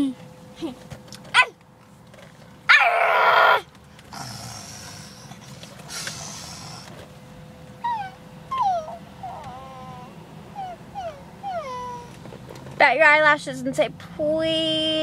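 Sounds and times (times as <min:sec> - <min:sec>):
child imitating dog barking: 0:01.3 - 0:01.6, 0:02.7 - 0:03.6
child whiny cries: 0:02.7 - 0:03.7, 0:07.8 - 0:12.2.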